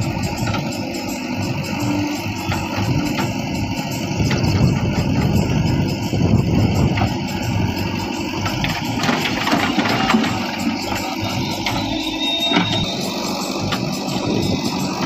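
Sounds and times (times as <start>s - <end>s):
diesel engine under load: 0.0s - 15.0s.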